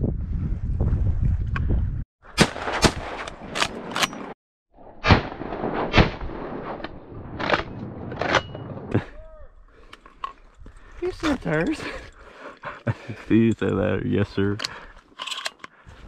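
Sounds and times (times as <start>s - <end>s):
wind rumble on microphone: 0.0s - 2.0s
shotgun shots: 2.4s - 3.9s.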